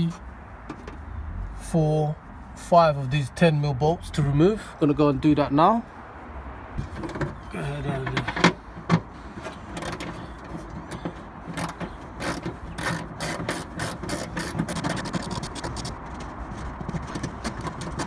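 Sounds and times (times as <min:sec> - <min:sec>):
ratchet wrench clicking: 0:11.6 - 0:14.8.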